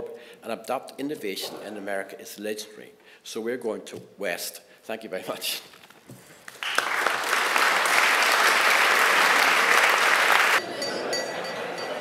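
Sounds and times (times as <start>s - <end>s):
audience applauding: 6.4s - 10.9s.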